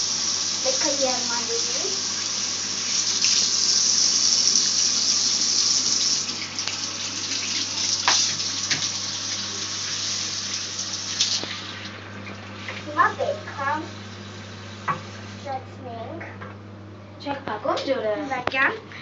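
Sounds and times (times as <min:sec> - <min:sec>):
tap water splashing into sink: 0:06.0 - 0:09.4, 0:14.8 - 0:15.1.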